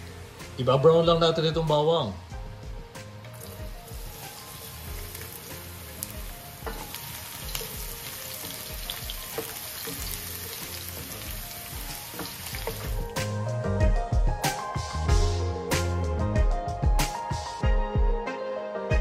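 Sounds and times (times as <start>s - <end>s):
garlic sizzling in oil: 3.3s - 13.6s
wooden spatula tapping and scraping: 6.6s - 8.1s, 8.7s - 13.1s.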